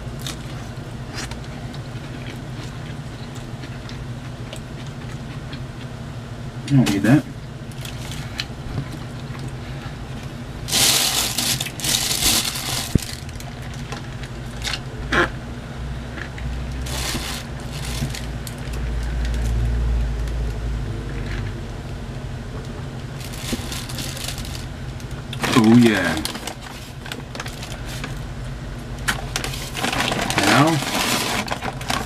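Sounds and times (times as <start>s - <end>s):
steady low hum: 0.0s - 32.0s
food packaging crinkling: 10.6s - 14.9s, 16.7s - 19.6s, 23.2s - 24.7s, 25.3s - 28.2s, 29.1s - 32.0s.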